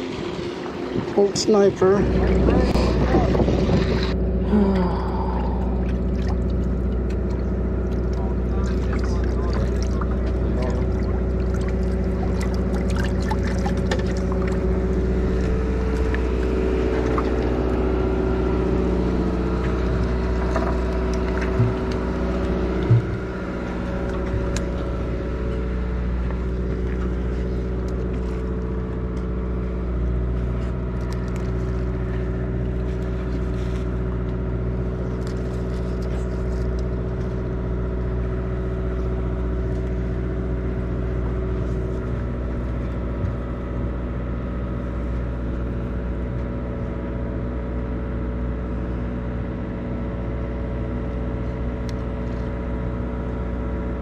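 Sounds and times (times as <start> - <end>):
boat engine humming: 0.0 - 54.0
short knocks: 22.8 - 23.4.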